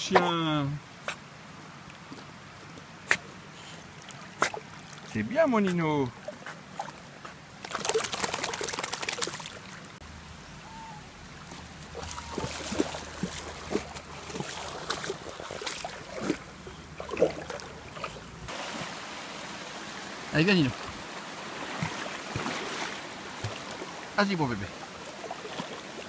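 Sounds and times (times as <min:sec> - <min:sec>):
stream trickling: 0:00.0 - 0:26.0
dog splashing through water: 0:06.2 - 0:09.9, 0:11.4 - 0:19.3, 0:21.4 - 0:24.0, 0:25.0 - 0:26.0.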